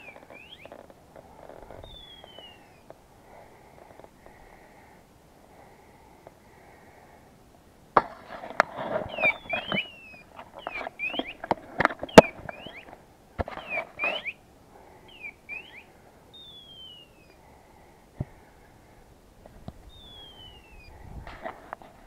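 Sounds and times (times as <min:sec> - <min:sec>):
rustling through dry grass: 0:00.0 - 0:04.9, 0:08.0 - 0:22.0
falling whistle: 0:15.1 - 0:17.4, 0:19.9 - 0:20.9.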